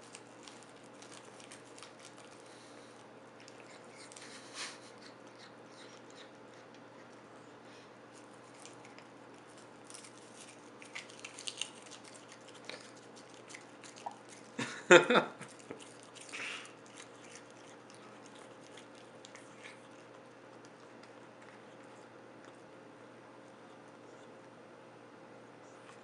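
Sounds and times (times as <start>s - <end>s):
cat chewing: 0.0s - 14.8s, 15.4s - 24.7s
cat biting: 3.4s - 7.3s, 8.2s - 14.6s, 15.4s - 24.4s.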